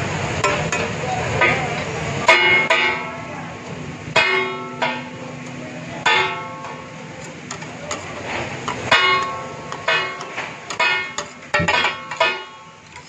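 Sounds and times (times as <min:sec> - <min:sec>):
frying sizzle: 0:00.0 - 0:13.0
metal utensils clanging on griddle: 0:00.4 - 0:13.0.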